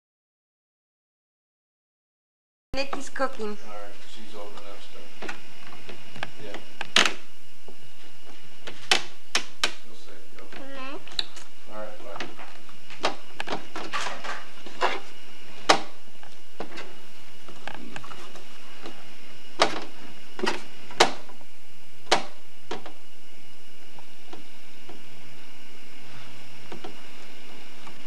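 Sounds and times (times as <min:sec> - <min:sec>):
steady hiss: 0:03.7 - 0:10.4.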